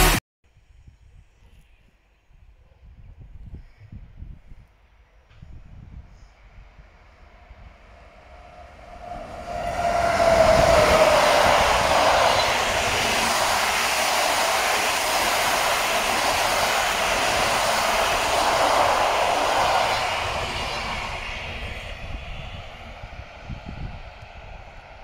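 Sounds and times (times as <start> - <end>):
electric locomotive whine: 5.1 - 25.0
train wheels rolling on rails: 7.7 - 25.0.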